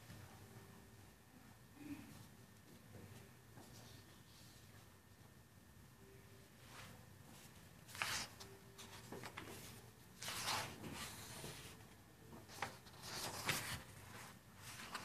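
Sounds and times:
paper sheets rustling: 0:07.8 - 0:15.0.

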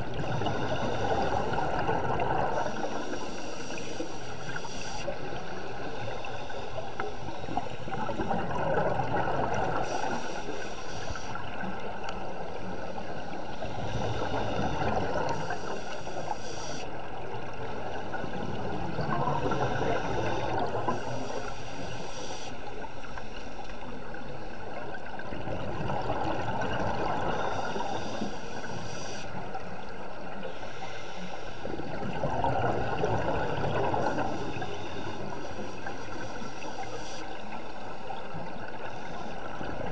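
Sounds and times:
exhaled bubbles rushing: 0:00.0 - 0:03.0, 0:07.9 - 0:09.9, 0:25.2 - 0:27.8, 0:31.8 - 0:34.7
underwater background noise: 0:00.0 - 0:39.9.

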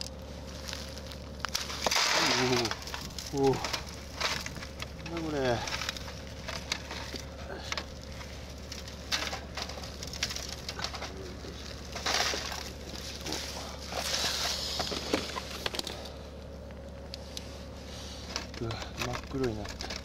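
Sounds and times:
foil crinkling: 0:00.0 - 0:16.2
loud rustling: 0:00.0 - 0:20.0
steady low hum: 0:00.0 - 0:20.0
foil trays clinking: 0:00.8 - 0:16.1, 0:18.3 - 0:20.0.

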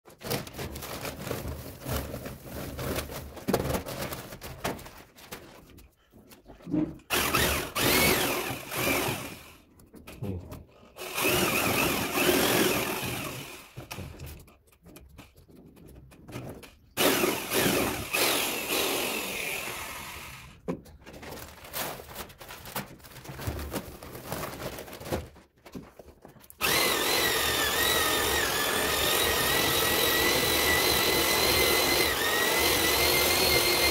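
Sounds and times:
electric paddle mixer motor whining: 0:07.1 - 0:09.6, 0:11.0 - 0:13.9, 0:17.0 - 0:20.5, 0:26.6 - 0:33.9.

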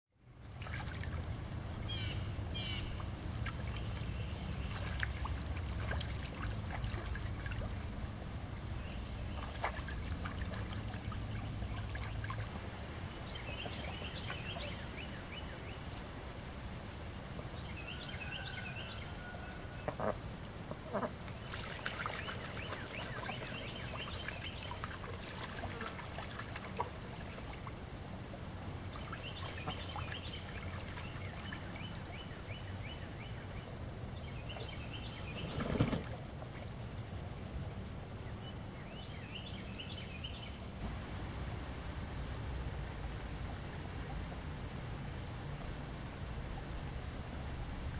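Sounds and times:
moving water hiss: 0:00.4 - 0:47.9
small birds chirping: 0:13.2 - 0:15.9, 0:21.4 - 0:26.8
ducks calling: 0:19.8 - 0:26.3
steady low rumble: 0:40.6 - 0:47.9.

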